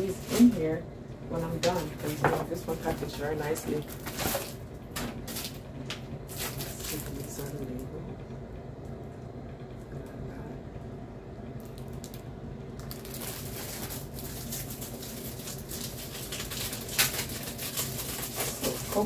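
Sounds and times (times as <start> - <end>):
low hum: 0.0 - 19.0
sticker sheet crinkling: 12.8 - 19.0.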